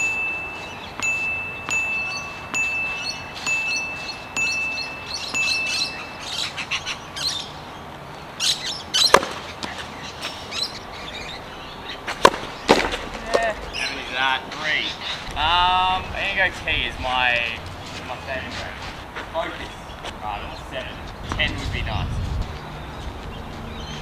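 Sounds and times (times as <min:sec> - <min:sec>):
high chime-like tone: 0:00.0 - 0:06.7
racket striking tennis ball: 0:09.0 - 0:09.9, 0:12.1 - 0:13.5.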